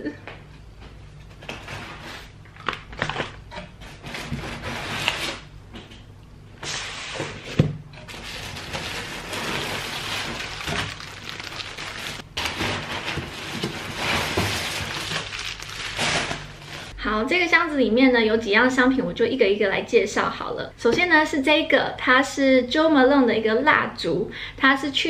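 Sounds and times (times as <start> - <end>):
packing paper rustling: 8.1 - 17.0.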